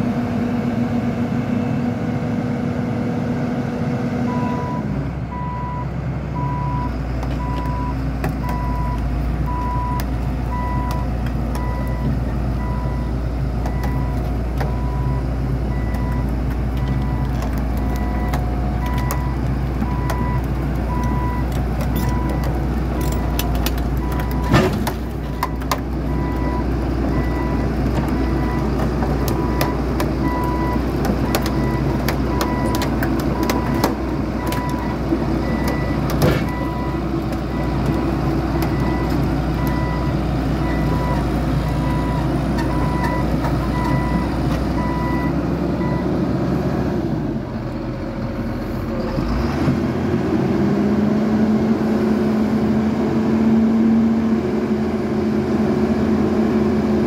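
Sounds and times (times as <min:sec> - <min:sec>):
excavator diesel engine running: 0:00.0 - 0:57.0
travel alarm beeping: 0:04.3 - 0:11.0, 0:11.6 - 0:16.2, 0:29.4 - 0:37.8.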